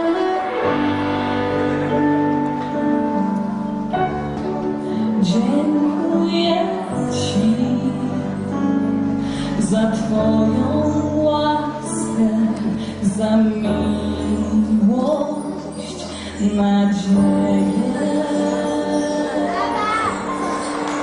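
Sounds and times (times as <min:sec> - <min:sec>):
keyboard playing: 0:00.0 - 0:21.0
woman singing into microphone: 0:05.2 - 0:20.7.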